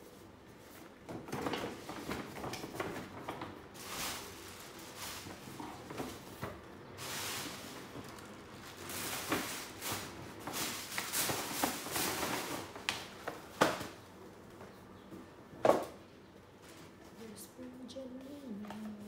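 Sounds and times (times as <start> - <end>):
tissue paper rustling and crinkling: 3.7 - 6.4, 7.0 - 12.9.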